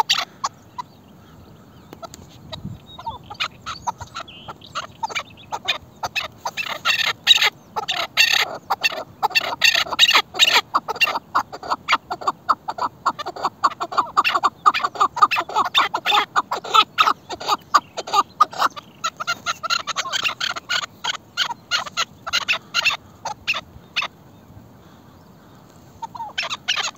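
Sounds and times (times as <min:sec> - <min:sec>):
partridges chuckling calls: 0:00.0 - 0:24.2, 0:24.8 - 0:26.9.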